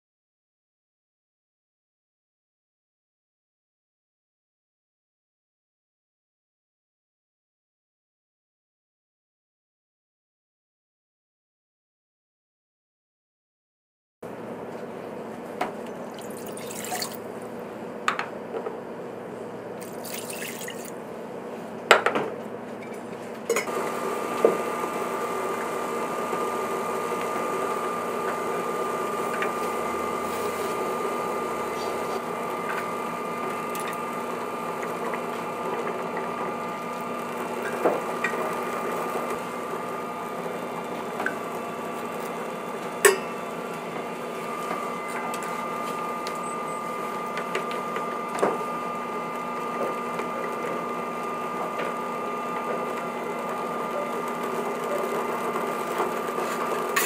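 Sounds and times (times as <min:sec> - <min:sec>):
induction hob humming and whining: 0:14.3 - 0:57.0
water boiling in pot: 0:15.9 - 0:17.6, 0:19.8 - 0:21.0.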